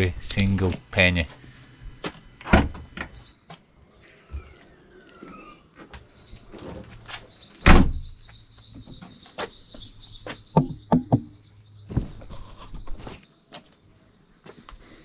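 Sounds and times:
birds chirping in fast trill: 0:03.1 - 0:13.5
sharp knocks and clicks: 0:10.2 - 0:11.4.

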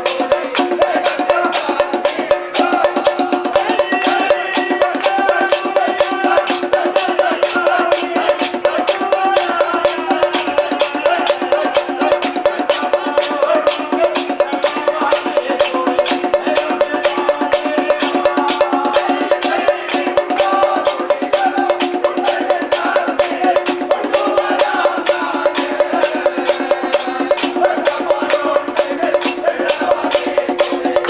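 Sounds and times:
barrel drum: 0:00.0 - 0:31.0
men singing: 0:00.0 - 0:31.0
steady clicking beat: 0:00.0 - 0:31.0.

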